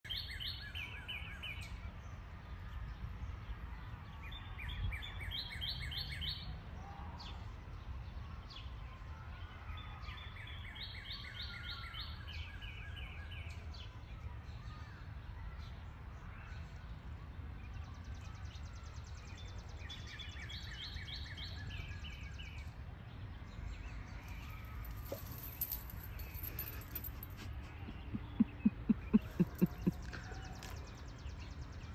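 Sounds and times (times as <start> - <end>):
songbird singing: 0.0 - 2.2, 4.0 - 6.6, 9.4 - 31.9
low outdoor rumble: 23.1 - 31.9.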